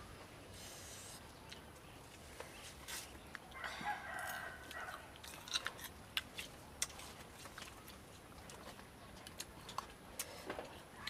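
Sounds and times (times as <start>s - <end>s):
rooster crowing: 3.6s - 5.1s.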